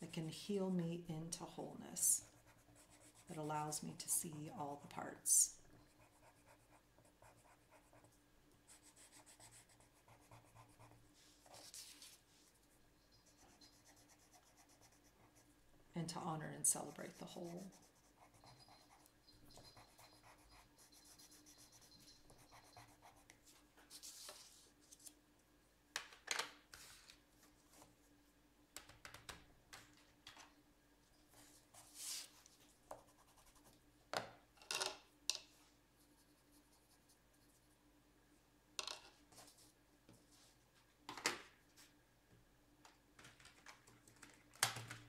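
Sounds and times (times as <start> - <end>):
pencil scratching on paper: 2.2 - 3.7, 5.9 - 12.7, 13.3 - 15.5, 16.8 - 23.3.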